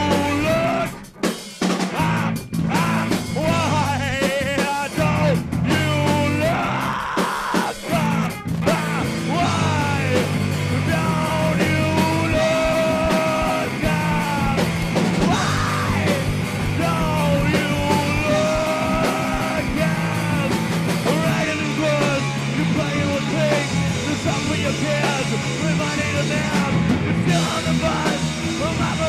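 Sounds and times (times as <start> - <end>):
drum kit: 0.0 - 29.0
electric guitars: 0.0 - 29.0
shouted group vocals: 6.3 - 10.0, 15.3 - 21.6.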